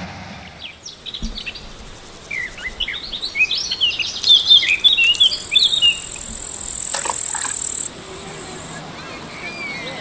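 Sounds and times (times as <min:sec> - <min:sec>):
small birds singing: 0:00.6 - 0:10.0
high-pitched insect-like buzz: 0:04.2 - 0:08.8.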